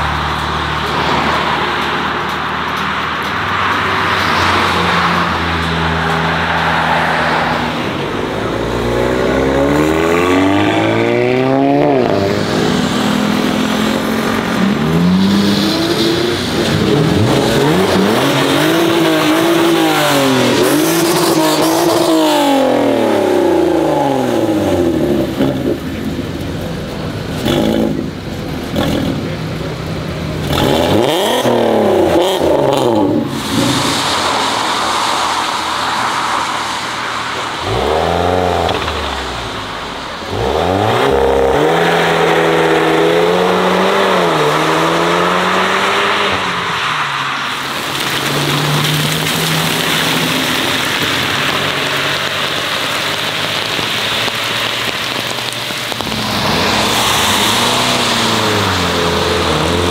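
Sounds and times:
cars accelerating hard: 0:00.0 - 0:26.6, 0:27.3 - 0:59.9
exhaust pops and crackles: 0:10.8 - 0:41.7, 0:47.1 - 0:59.9.

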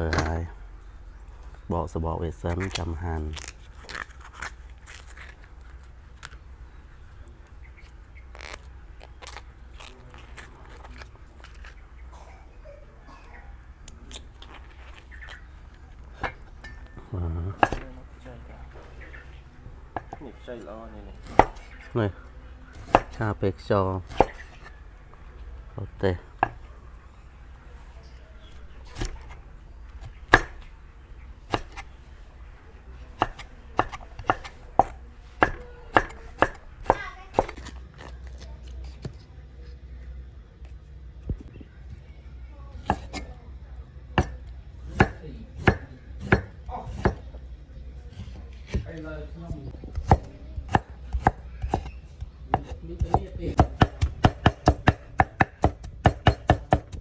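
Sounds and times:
cleaver chopping on wooden board: 0:17.6 - 0:17.9, 0:21.2 - 0:21.7, 0:22.8 - 0:23.2, 0:30.3 - 0:30.6, 0:33.2 - 0:37.6, 0:44.2 - 0:47.2, 0:50.0 - 0:57.0.

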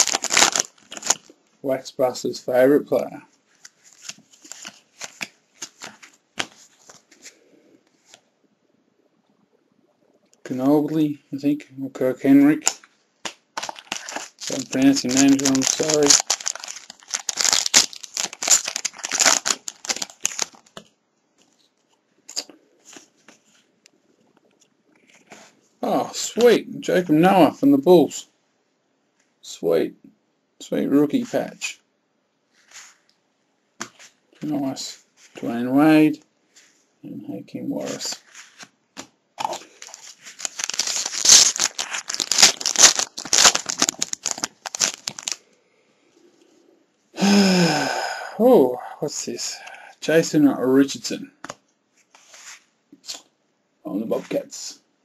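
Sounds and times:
cards rustling: 0:00.0 - 0:01.3, 0:03.5 - 0:08.2, 0:12.5 - 0:23.7, 0:37.7 - 0:45.4
foil wrapper tearing and crinkling: 0:00.0 - 0:01.3, 0:12.6 - 0:20.8, 0:39.4 - 0:45.4.

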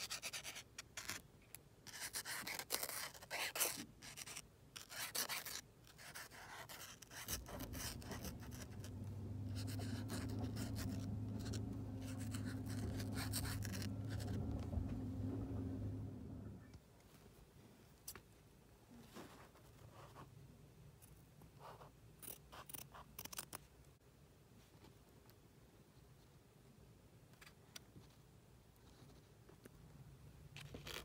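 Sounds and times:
marker scratching on paper: 0:00.0 - 0:01.2, 0:01.9 - 0:14.6
steady low hum: 0:07.1 - 0:16.8.

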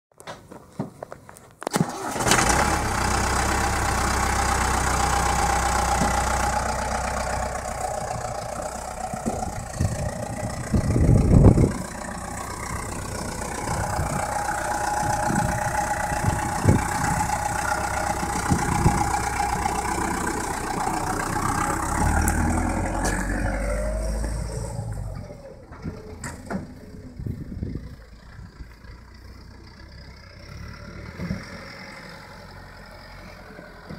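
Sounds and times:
vehicle engine starting and running: 0:01.6 - 0:33.9.

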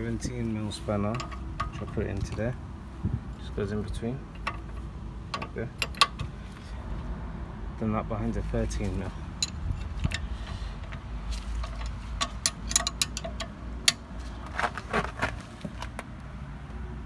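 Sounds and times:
spanners clinking on metal: 0:11.6 - 0:14.0.

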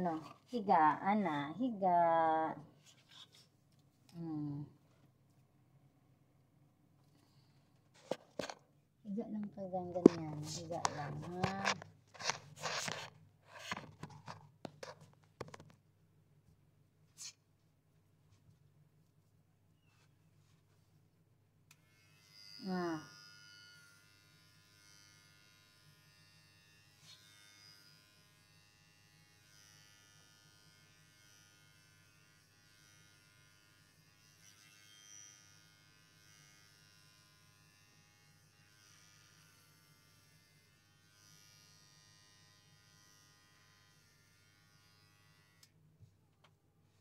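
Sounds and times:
electric hair clippers buzzing: 0:10.1 - 0:13.1, 0:21.7 - 0:45.8.

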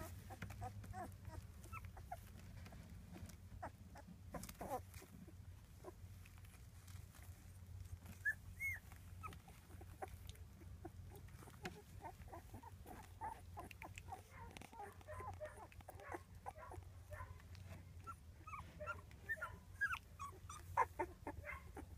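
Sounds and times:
puppies squeaking and whimpering: 0:00.0 - 0:05.1, 0:08.0 - 0:17.3, 0:18.0 - 0:21.9
puppy squeals: 0:08.2 - 0:10.1, 0:18.0 - 0:21.9.

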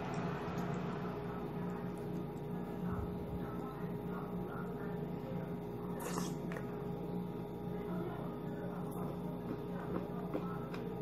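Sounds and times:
low steady hum: 0:00.0 - 0:11.0
person chewing: 0:06.0 - 0:06.6.

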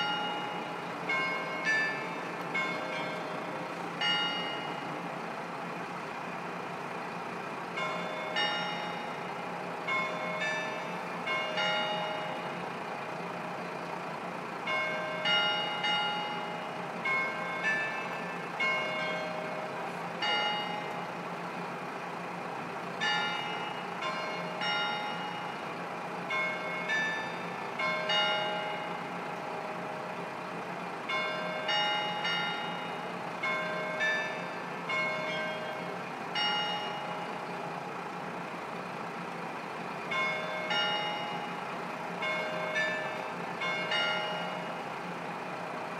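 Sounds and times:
bell-like chime notes: 0:00.0 - 0:04.9
bell-like chimes: 0:00.0 - 0:05.0, 0:07.8 - 0:09.3, 0:14.7 - 0:21.1, 0:23.0 - 0:25.7, 0:31.1 - 0:37.5, 0:40.1 - 0:44.8
diesel engine idling: 0:00.0 - 0:45.9.

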